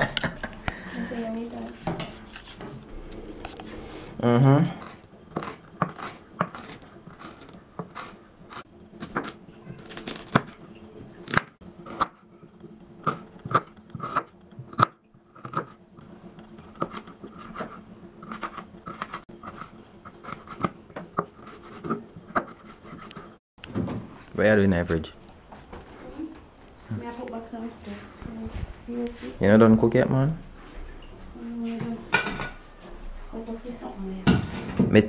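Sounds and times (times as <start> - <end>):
knife cutting vegetables on board: 4.7 - 10.6.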